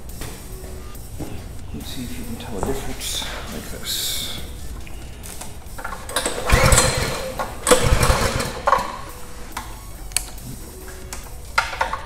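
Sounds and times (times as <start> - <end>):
small engine starting: 5.9 - 9.1.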